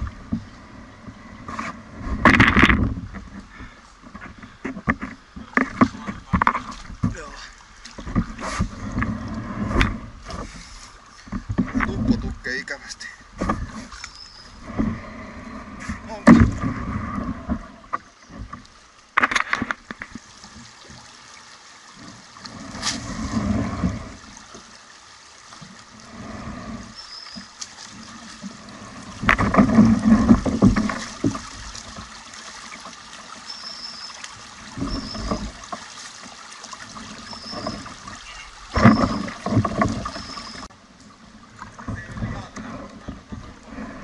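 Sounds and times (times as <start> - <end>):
paddle splashing in water: 0.0 - 44.0
paddle knocks: 1.4 - 12.5, 13.3 - 15.0, 15.8 - 21.0, 27.4 - 33.0, 34.7 - 40.7, 41.6 - 43.8.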